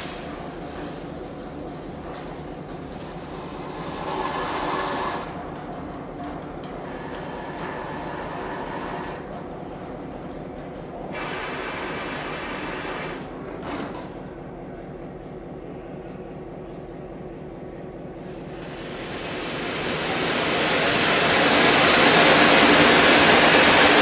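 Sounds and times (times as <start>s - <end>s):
steam hissing from valves: 0.0s - 0.6s, 3.2s - 5.4s, 6.8s - 9.3s, 11.1s - 13.3s, 18.2s - 24.0s.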